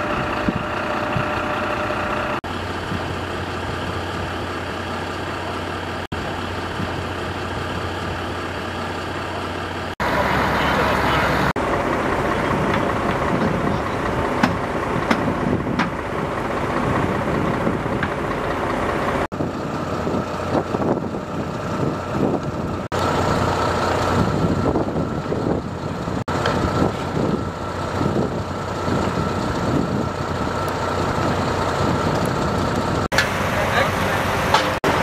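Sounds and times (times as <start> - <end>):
diesel truck engine running: 0.0 - 35.0.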